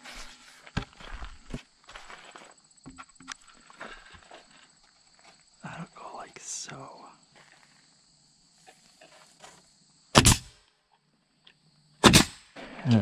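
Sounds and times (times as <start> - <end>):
nail gun shots: 10.2 - 10.5, 12.0 - 12.7.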